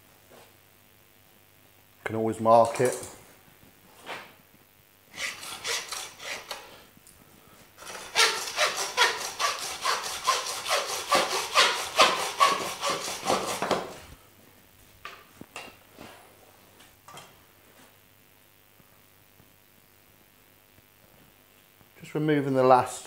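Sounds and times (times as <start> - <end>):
hand saw cutting bone: 5.2 - 6.6, 7.8 - 14.0.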